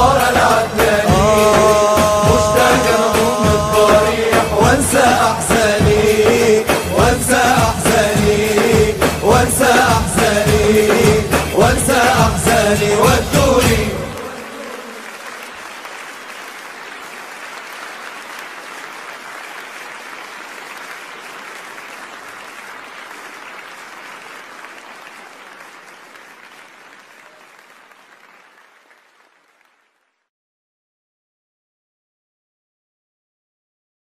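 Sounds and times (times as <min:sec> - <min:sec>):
audience applauding: 0:00.0 - 0:30.3.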